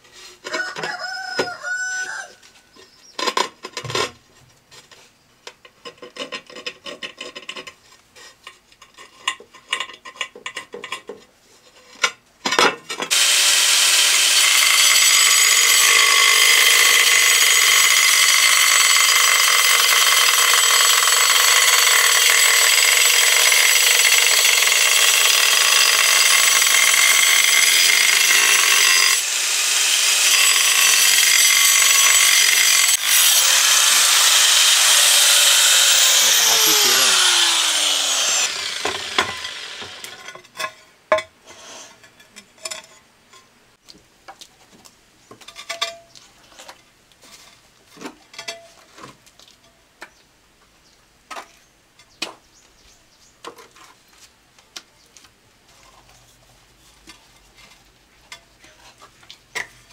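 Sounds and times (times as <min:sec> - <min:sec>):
scraping and light knocks: 0:02.4 - 0:12.3, 0:41.5 - 0:50.2, 0:53.4 - 0:59.9
power tool cutting tile: 0:13.1 - 0:40.2.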